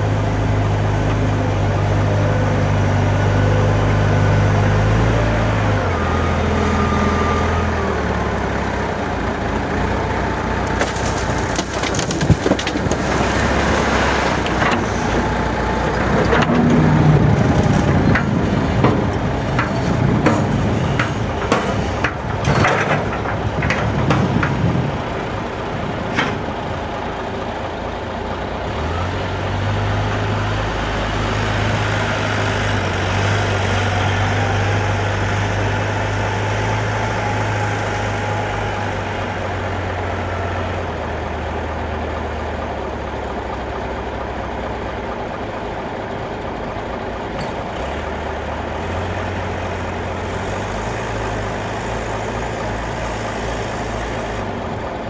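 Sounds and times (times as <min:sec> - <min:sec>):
diesel truck engine idling: 0:00.0 - 0:55.0
wheel loader engine working: 0:00.0 - 0:55.0.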